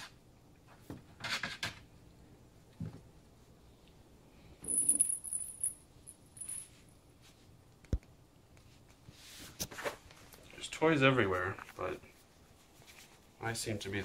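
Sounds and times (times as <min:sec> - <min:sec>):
toy jingling rattle: 0:04.6 - 0:05.8, 0:06.4 - 0:06.7.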